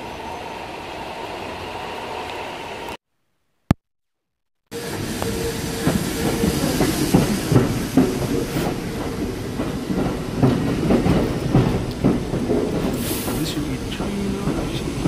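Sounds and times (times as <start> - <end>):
train wheels clacking over rail joints: 4.9 - 15.0.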